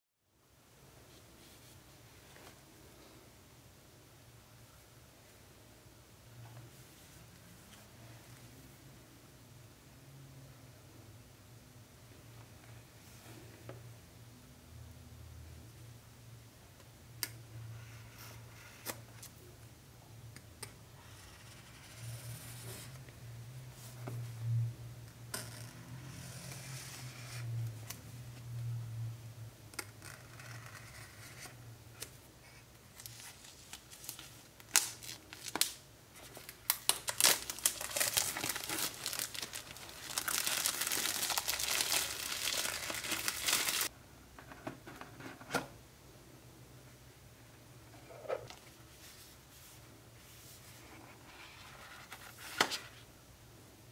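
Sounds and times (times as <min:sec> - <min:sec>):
soft rustling of packaging: 0:30.0 - 0:43.9
packaging tearing and crinkling: 0:33.0 - 0:35.8, 0:36.4 - 0:43.9
packaging clicks: 0:36.7 - 0:43.9.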